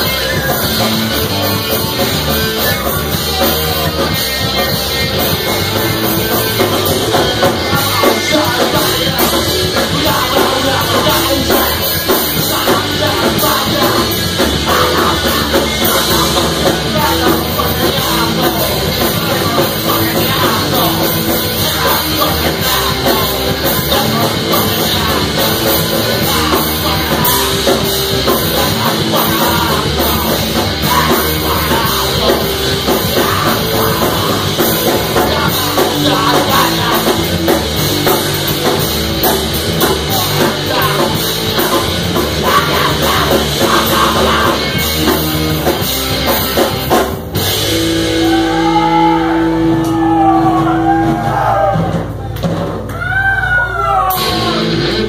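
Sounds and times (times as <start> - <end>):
bass guitar: 0.0 - 55.0
drum kit: 0.0 - 55.0
electric guitar: 0.0 - 55.0
singer shouting into microphone: 48.1 - 52.0, 53.3 - 55.0.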